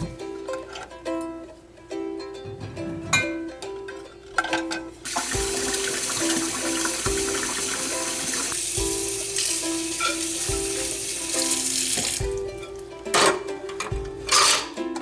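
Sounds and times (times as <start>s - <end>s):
ukulele music: 0.0s - 15.0s
faucet running into sink: 5.0s - 12.4s.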